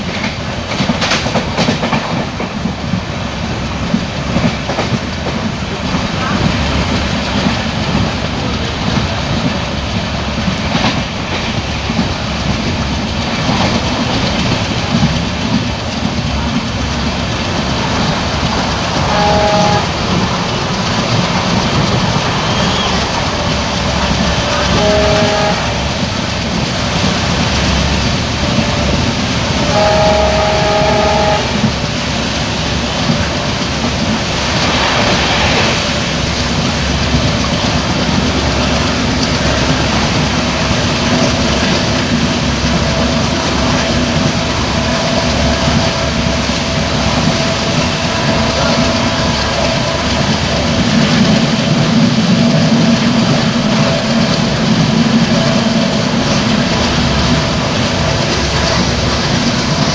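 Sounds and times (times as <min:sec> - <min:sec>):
rushing wind: 0:00.0 - 0:59.9
train wheels rumbling on rail: 0:00.0 - 0:59.9
locomotive horn blasts: 0:19.0 - 0:20.3, 0:24.4 - 0:26.0, 0:29.6 - 0:31.8.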